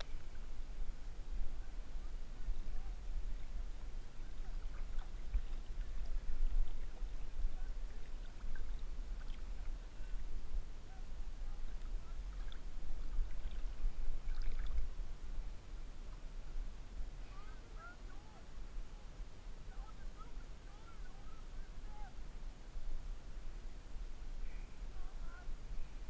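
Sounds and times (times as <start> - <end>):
water lapping against camera: 0.0 - 15.2
water drips and splashes: 4.4 - 10.0, 11.7 - 15.0.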